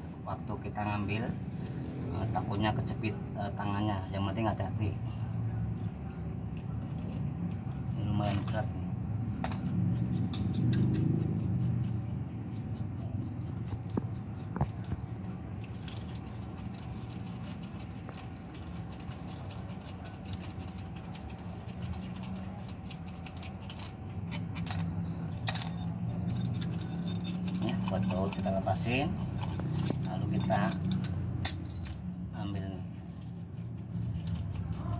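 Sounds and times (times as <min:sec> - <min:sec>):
steady low hum: 0:00.0 - 0:34.9
metallic clicks and scrapes: 0:09.4 - 0:32.1.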